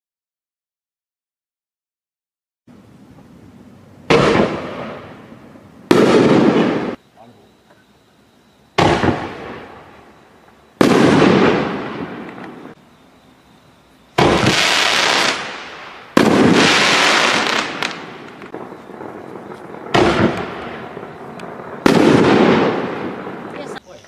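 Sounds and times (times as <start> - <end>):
firework shells bursting: 4.0 - 7.0, 8.8 - 10.0, 10.8 - 12.8, 14.2 - 23.8.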